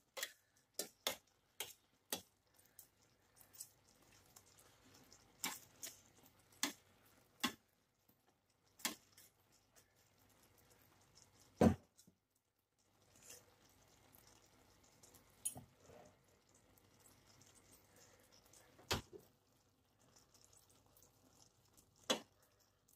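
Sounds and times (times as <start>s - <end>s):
metal tongs clicking against pan: 0.0s - 7.6s, 8.7s - 9.4s, 15.4s - 15.6s.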